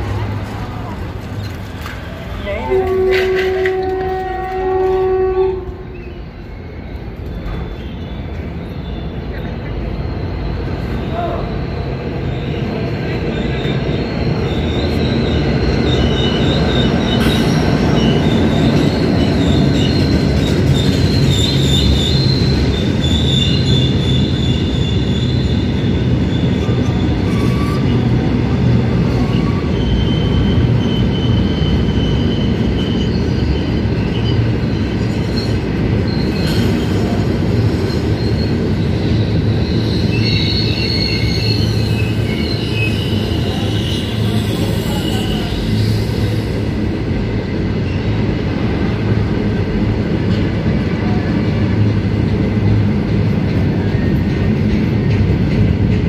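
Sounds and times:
freight train rumbling on rails: 0:00.0 - 0:56.0
high wheel squeal: 0:05.8 - 0:49.6.

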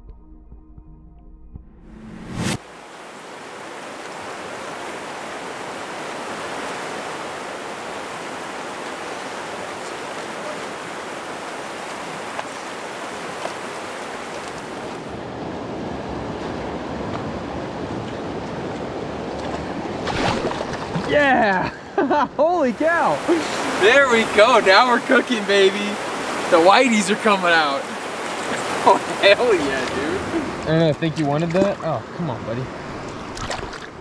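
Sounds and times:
river rushing over rocks: 0:02.7 - 0:15.1, 0:22.8 - 0:30.7.

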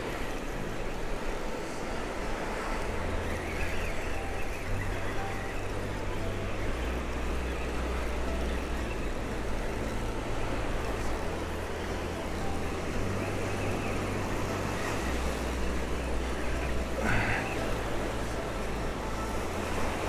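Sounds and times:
surf washing: 0:00.0 - 0:20.0.

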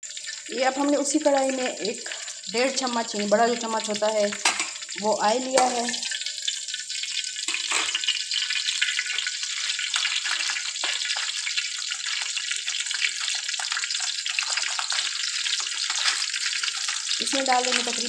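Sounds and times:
oil sizzling in a metal pan: 0:00.0 - 0:18.0.

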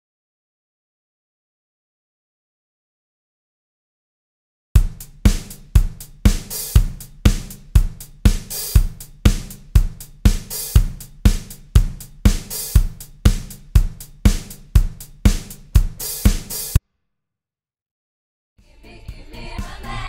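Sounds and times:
hi-hat ticks: 0:04.8 - 0:16.8
kick drum: 0:04.8 - 0:16.8
snare drum hits: 0:04.8 - 0:16.8.

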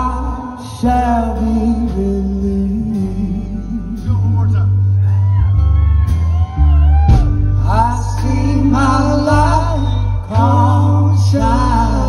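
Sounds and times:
male lead vocal: 0:00.0 - 0:04.9, 0:07.4 - 0:12.0
acoustic guitar: 0:00.0 - 0:12.0
steady bass: 0:00.0 - 0:12.0.

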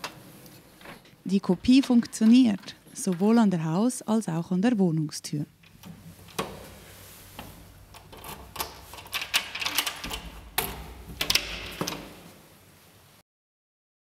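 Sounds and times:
key turning in lock clicking: 0:07.9 - 0:12.1.

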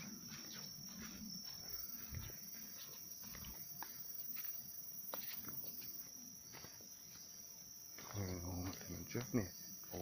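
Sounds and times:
footsteps on road: 0:00.0 - 0:10.0
night insects chirring: 0:00.0 - 0:10.0.

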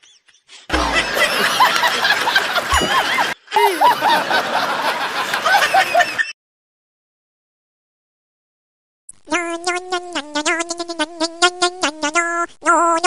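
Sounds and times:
people chuckling and snickering: 0:00.4 - 0:06.3.

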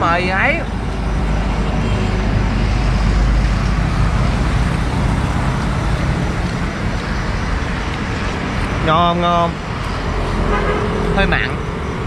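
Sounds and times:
passing road traffic: 0:00.0 - 0:12.0.

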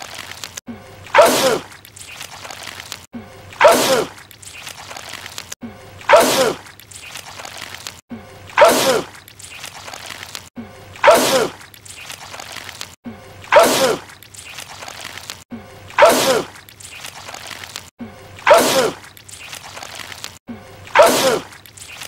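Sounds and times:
man sneezing: 0:16.0 - 0:16.5, 0:21.0 - 0:21.5.

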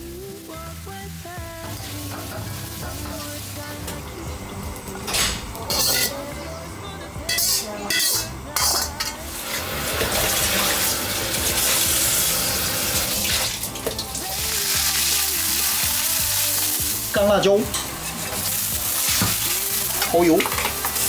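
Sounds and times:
metal spatula scraping a plate: 0:05.1 - 0:06.2, 0:07.3 - 0:09.6
water hissing in a stockpot: 0:09.4 - 0:17.1.

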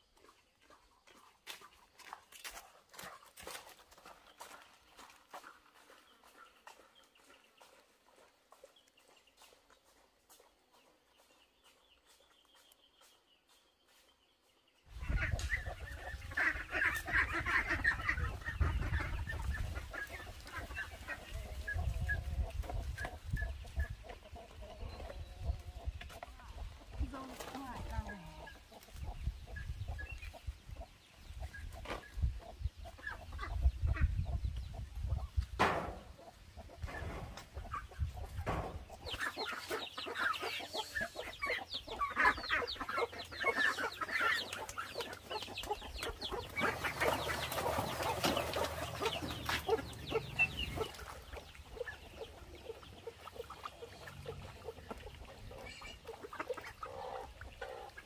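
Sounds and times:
chickens clucking: 0:14.9 - 0:58.0.

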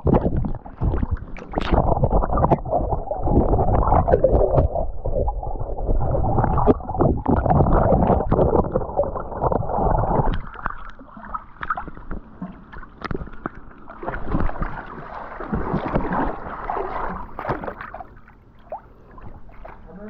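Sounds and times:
water sloshing and splashing: 0:00.0 - 0:20.0.

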